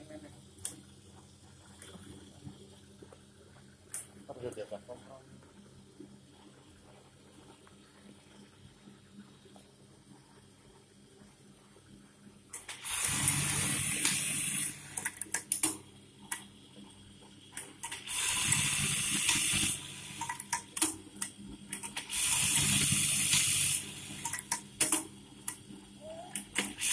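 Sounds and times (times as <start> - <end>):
sewing machine whirring: 12.6 - 15.7, 17.6 - 20.8, 21.7 - 25.0, 26.0 - 26.9.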